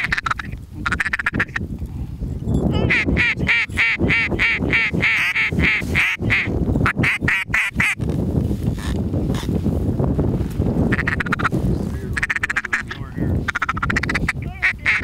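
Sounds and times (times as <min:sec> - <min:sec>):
duck quacking: 0:00.0 - 0:01.6, 0:02.8 - 0:08.0, 0:10.9 - 0:11.5, 0:12.1 - 0:15.0.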